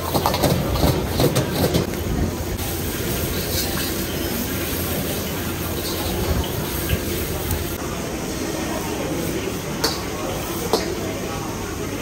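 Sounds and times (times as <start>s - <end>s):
metal utensils scraping a wok: 0.0s - 1.9s, 2.8s - 7.3s
gas burner rushing: 0.0s - 7.9s
rice frying: 0.0s - 11.6s.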